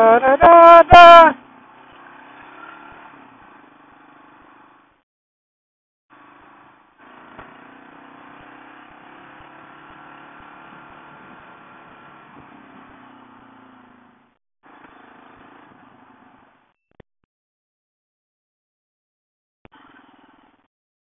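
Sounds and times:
wind and tyre noise: 0.9s - 5.0s, 6.1s - 16.7s
motorcycle engine running: 6.1s - 16.7s.

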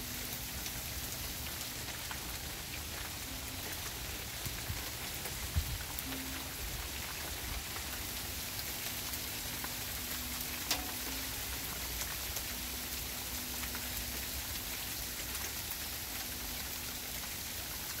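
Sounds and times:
small hail falling: 0.6s - 13.8s.

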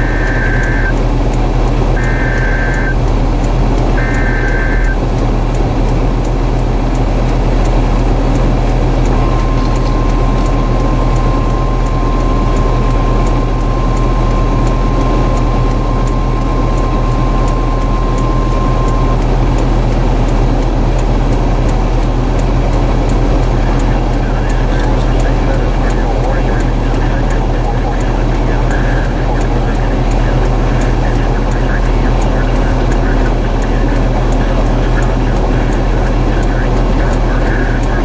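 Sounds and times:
steady high alert beep: 0.0s - 1.0s, 2.0s - 3.0s, 4.0s - 5.0s, 9.0s - 19.3s, 23.7s - 38.0s
light ticking: 0.0s - 38.0s
rumble of wind and vehicle: 0.0s - 38.0s.

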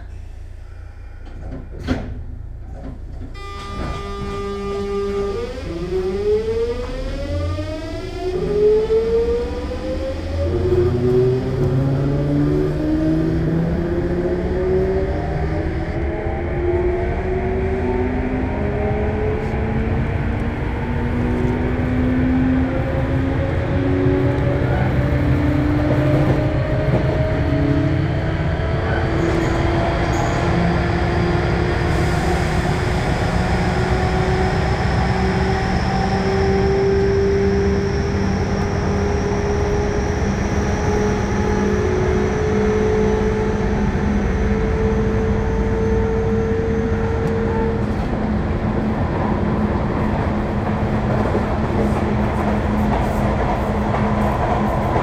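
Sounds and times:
wheels rumbling on rail: 0.0s - 55.0s
train motor whine rising in pitch: 31.8s - 47.9s.

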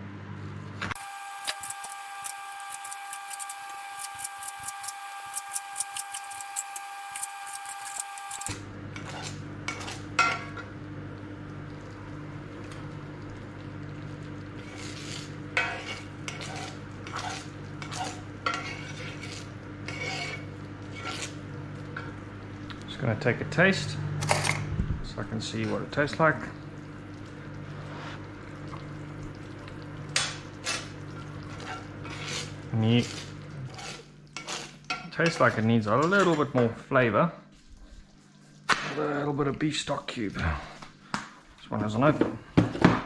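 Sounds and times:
metal spoon scraping skillet: 1.6s - 10.3s, 14.6s - 21.4s, 31.5s - 36.4s
steady low hum: 7.1s - 42.6s.

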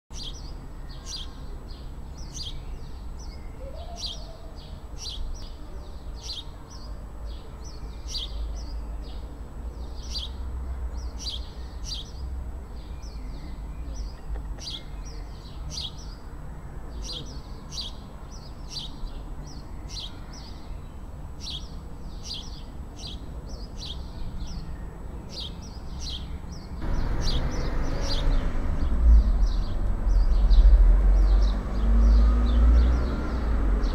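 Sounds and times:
bird chirping: 0.1s - 16.3s, 16.9s - 33.9s
loud rumbling noise: 26.8s - 33.9s
low outdoor rumble: 26.8s - 33.9s.

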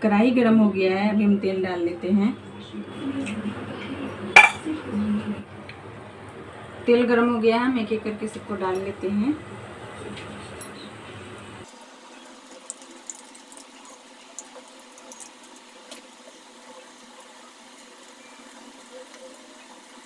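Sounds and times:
food deep-frying in oil: 10.4s - 20.0s.

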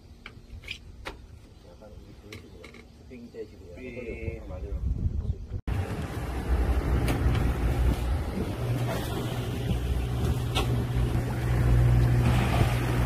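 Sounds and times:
boat engine droning: 5.7s - 13.0s.

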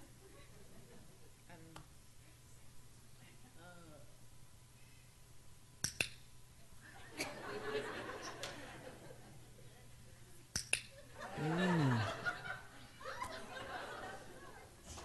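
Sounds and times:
people laughing: 0.0s - 1.3s, 6.8s - 10.2s, 11.0s - 15.0s
training clicker double click: 5.8s - 6.2s.

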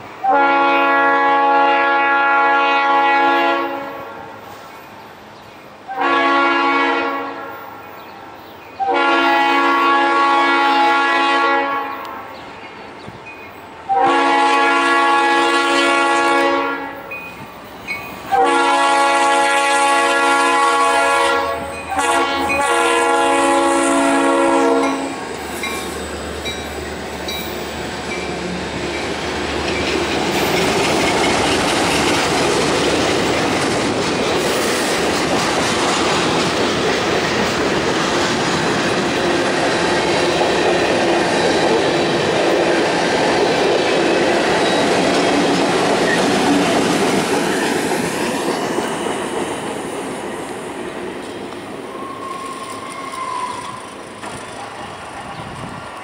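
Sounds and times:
locomotive horn blasts: 0.2s - 4.3s, 5.9s - 7.6s, 8.8s - 12.1s, 13.9s - 17.1s, 18.3s - 25.2s
freight cars rolling by: 21.2s - 56.0s.

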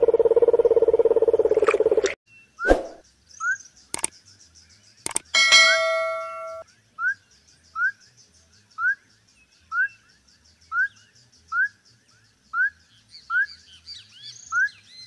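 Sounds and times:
notification bell chime: 5.4s - 6.6s.

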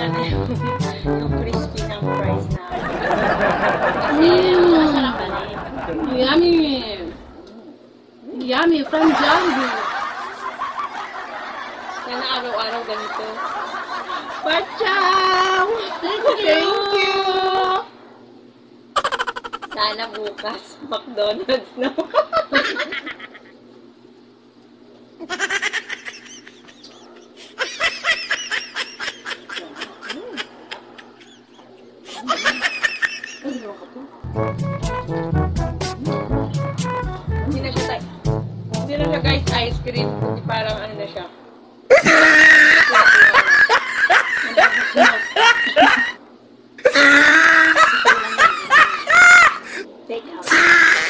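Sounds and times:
high-pitched laughter: 19.0s - 20.6s, 25.2s - 33.9s, 41.9s - 46.2s, 46.8s - 49.8s, 50.5s - 51.0s.

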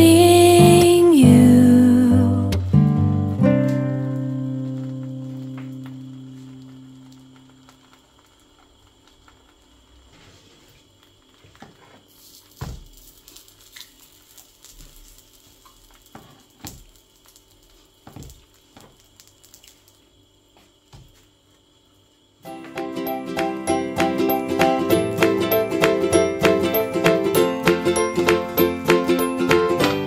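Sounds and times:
music: 0.0s - 7.4s, 22.4s - 30.0s
food sizzling in a pan: 0.0s - 30.0s.

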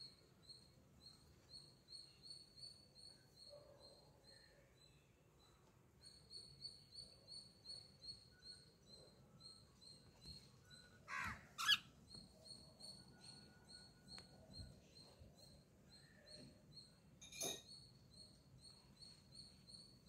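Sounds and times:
faint high chirp: 0.0s - 11.0s, 11.6s - 20.0s
cockatiel harsh calls: 11.1s - 11.9s.

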